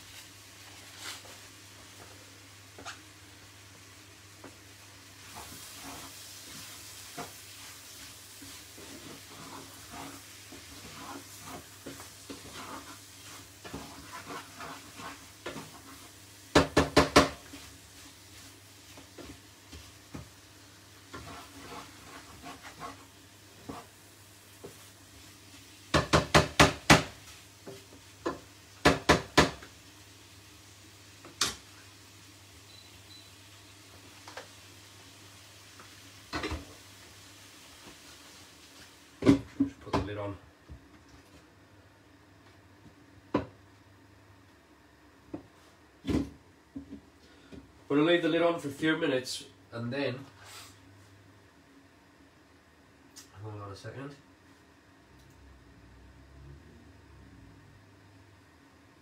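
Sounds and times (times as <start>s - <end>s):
food frying in a pan: 0.0s - 39.6s
wooden spatula scraping a pan: 5.2s - 16.5s, 17.4s - 25.8s
spatula knocking on pan: 16.5s - 17.5s, 25.9s - 29.7s.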